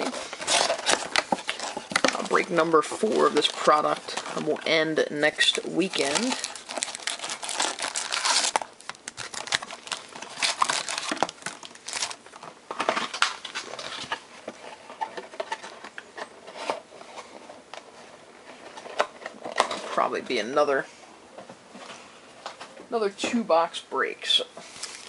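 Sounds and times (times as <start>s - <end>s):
foil wrappers crinkling: 0.0s - 15.8s, 24.6s - 25.0s.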